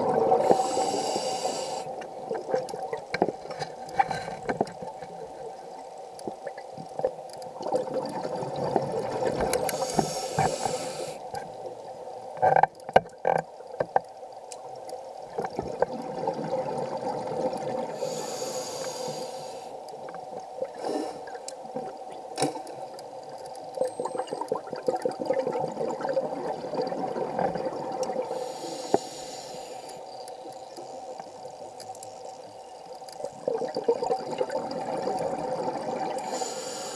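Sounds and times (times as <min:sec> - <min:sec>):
regulator inhale hiss: 0:00.3 - 0:02.0, 0:09.6 - 0:11.3, 0:17.9 - 0:19.8, 0:20.8 - 0:21.4, 0:28.2 - 0:30.1, 0:36.2 - 0:36.9.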